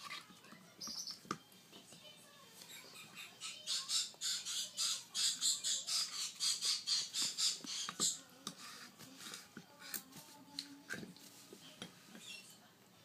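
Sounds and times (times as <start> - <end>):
parrot chick begging calls: 2.7 - 8.2.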